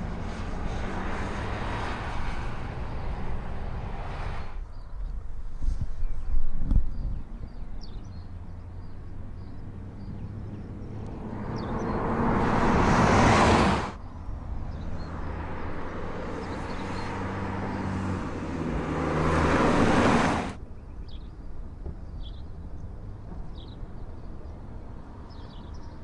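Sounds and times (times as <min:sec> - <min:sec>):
car driving past: 0:00.0 - 0:04.7, 0:07.5 - 0:20.6.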